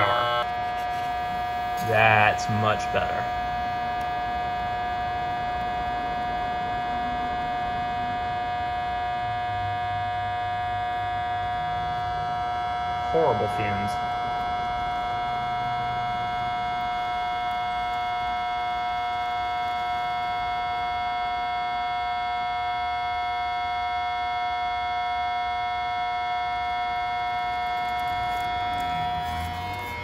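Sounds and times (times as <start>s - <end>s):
electrical hum with high whine: 0.0s - 30.0s.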